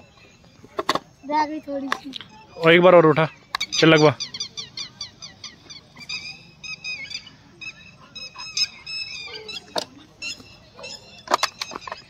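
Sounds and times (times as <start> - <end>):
bird honking calls: 2.4 - 12.0.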